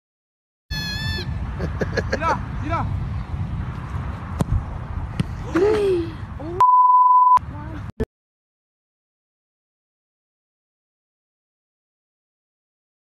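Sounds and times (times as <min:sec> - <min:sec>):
outdoor background noise: 0:00.7 - 0:08.0
censor bleep: 0:06.6 - 0:07.4.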